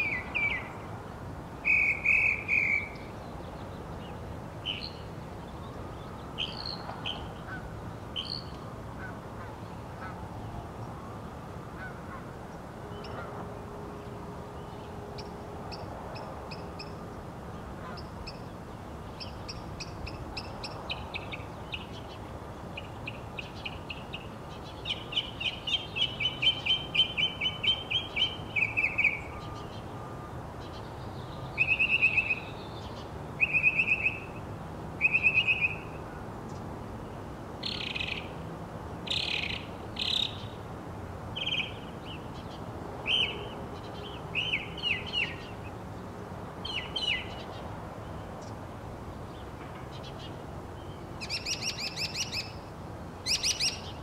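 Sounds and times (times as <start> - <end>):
mockingbird singing: 0.0 - 0.8, 1.6 - 3.1, 31.5 - 34.3, 53.2 - 54.0.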